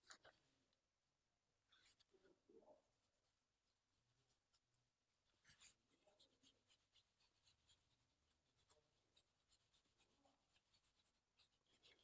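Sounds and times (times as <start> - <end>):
ink brush scratching on paper: 3.7 - 12.0.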